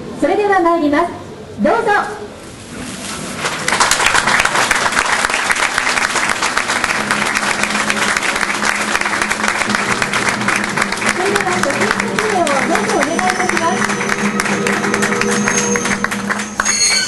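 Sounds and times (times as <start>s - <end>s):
crowd applauding: 3.5s - 17.0s.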